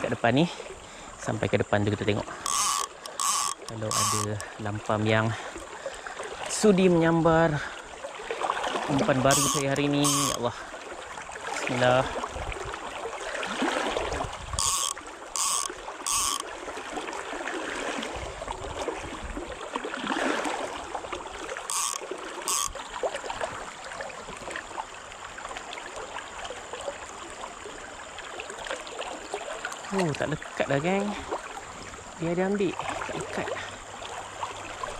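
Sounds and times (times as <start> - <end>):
fly reel buzzing: 2.3 - 4.6, 9.2 - 10.6, 14.6 - 16.5, 21.6 - 22.8.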